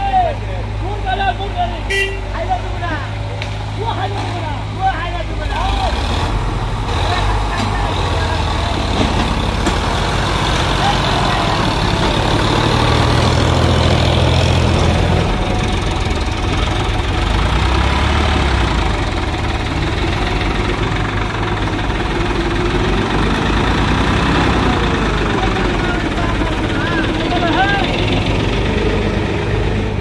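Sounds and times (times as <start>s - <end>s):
diesel tractor engines idling: 0.0s - 30.0s.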